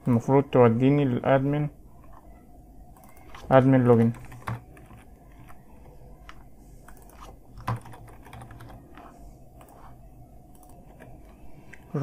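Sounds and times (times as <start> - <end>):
keyboard typing: 1.9 - 12.0.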